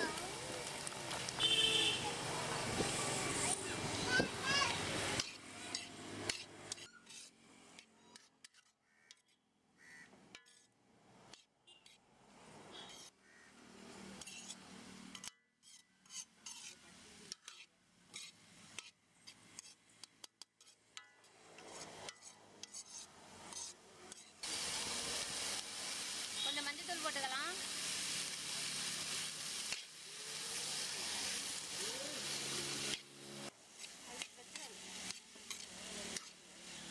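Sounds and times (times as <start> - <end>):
ladle scraping metal pan: 14.2 - 14.6, 15.2 - 18.9, 21.6 - 24.3, 35.0 - 36.4.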